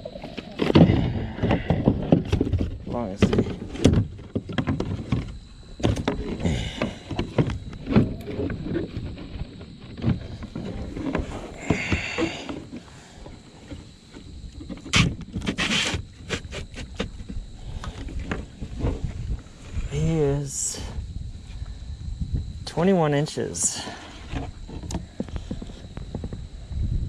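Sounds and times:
knocks and scuffs in plastic kayak: 14.7s - 17.4s.

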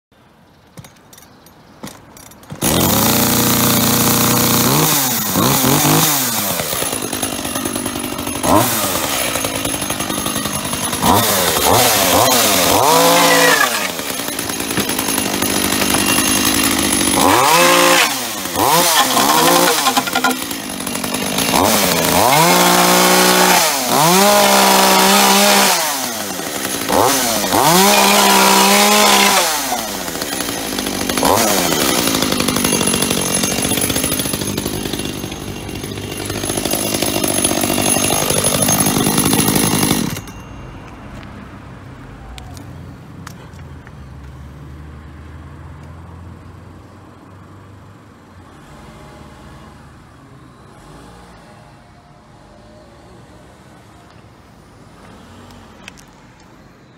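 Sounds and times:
chainsaw cutting wood: 1.9s - 40.6s
chainsaw engine revving: 2.5s - 40.5s.

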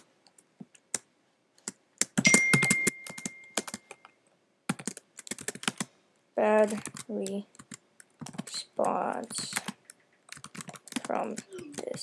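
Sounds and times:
laptop keyboard typing: 0.0s - 4.1s, 4.7s - 5.9s, 6.5s - 12.0s
ringing ding: 2.2s - 3.6s.

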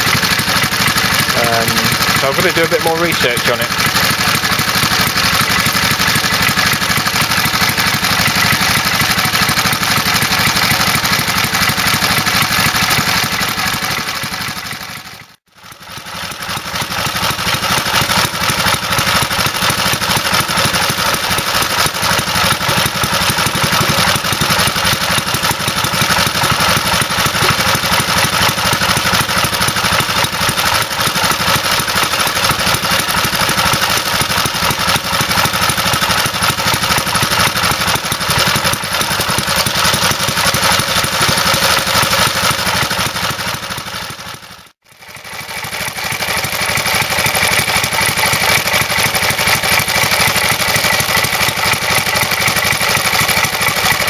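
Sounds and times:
single-cylinder engine running: 0.0s - 54.0s.

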